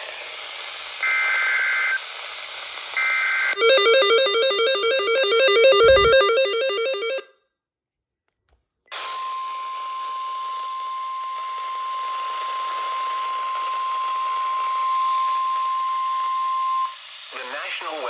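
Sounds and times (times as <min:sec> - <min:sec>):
steady alert tone: 0:03.6 - 0:07.3
radio hiss: 0:17.0 - 0:18.0.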